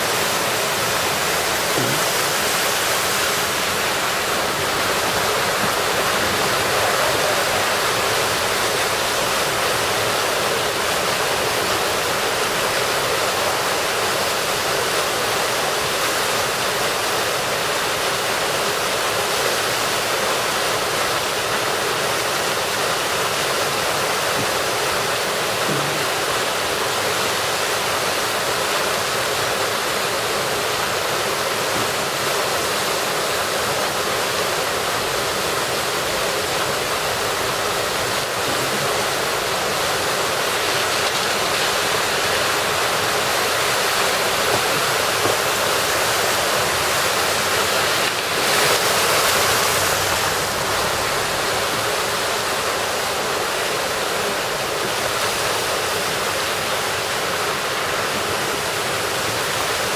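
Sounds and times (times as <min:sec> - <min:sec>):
water gushing from storm drain: 0:00.0 - 0:59.9.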